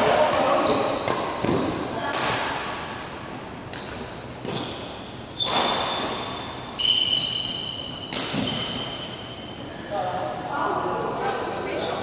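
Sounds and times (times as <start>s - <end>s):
shoe squeak: 0.5s - 1.4s, 5.3s - 9.9s, 11.7s - 12.0s
rackets striking shuttlecock: 3.6s - 6.3s, 8.0s - 9.0s.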